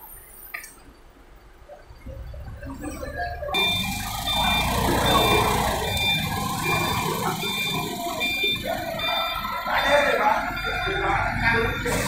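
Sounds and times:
forklift engine running: 1.9s - 12.0s
warning beeper: 2.9s - 12.0s.

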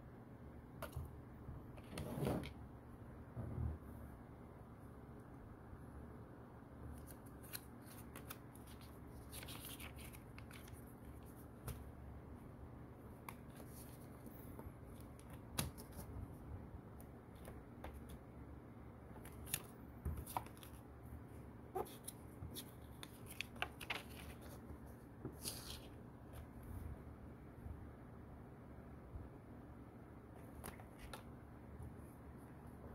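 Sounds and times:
paper booklet rustling: 6.9s - 11.9s, 13.2s - 16.2s, 19.2s - 20.9s, 21.8s - 26.8s, 30.4s - 31.3s.

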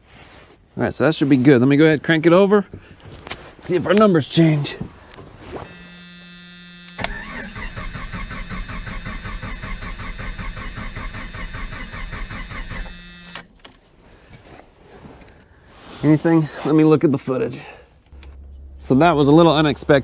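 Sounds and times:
electric fuel pump humming: 5.7s - 13.5s
engine cranking on starter: 6.9s - 13.0s.

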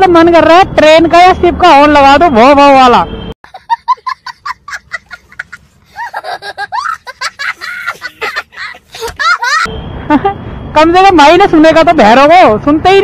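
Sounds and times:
young child laughing: 3.5s - 10.3s.

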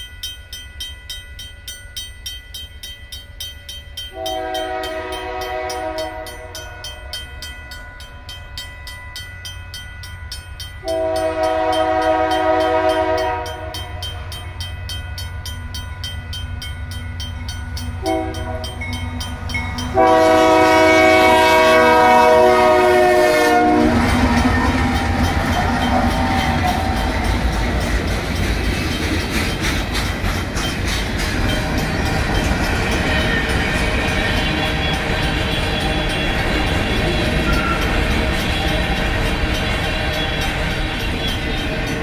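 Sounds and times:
crossing bell ringing: 0.0s - 42.0s
train engine and wheel noise: 0.0s - 42.0s
locomotive horn blasts: 4.1s - 6.8s, 10.8s - 14.0s, 18.0s - 18.8s, 19.9s - 24.9s.

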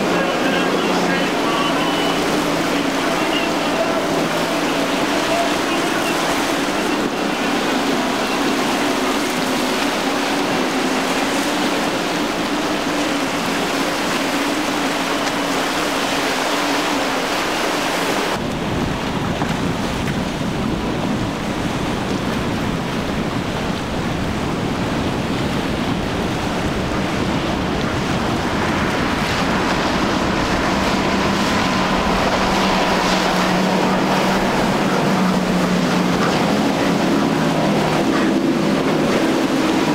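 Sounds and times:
outboard motor drone: 0.0s - 39.9s
rush of spray and waves: 0.0s - 39.9s.

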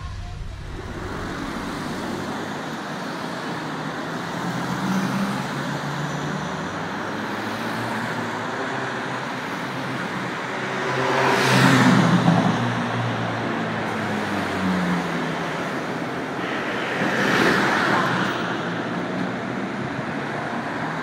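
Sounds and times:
tram approaching: 0.0s - 4.7s, 11.9s - 21.0s
cars driving past: 0.0s - 21.0s.

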